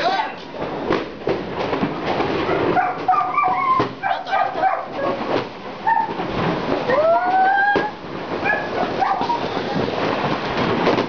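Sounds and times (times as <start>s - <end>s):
dog yelping and whining: 2.6s - 5.2s, 5.8s - 6.2s, 6.9s - 9.5s.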